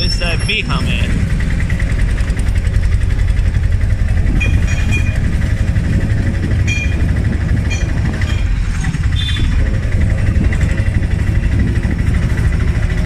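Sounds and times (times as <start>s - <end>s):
road noise: 0.0s - 13.0s
vehicle engine rumble: 0.0s - 13.0s
traffic horn beeps: 4.4s - 5.2s, 6.6s - 7.1s, 9.1s - 9.6s.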